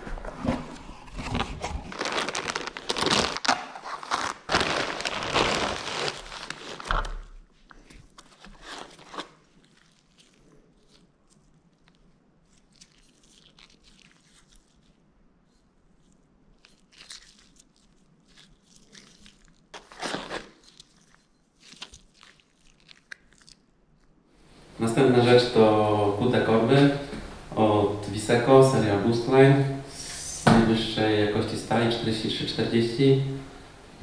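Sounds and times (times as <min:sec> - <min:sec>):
plastic packaging crinkling: 0:00.2 - 0:07.4, 0:08.0 - 0:14.9, 0:16.6 - 0:24.1.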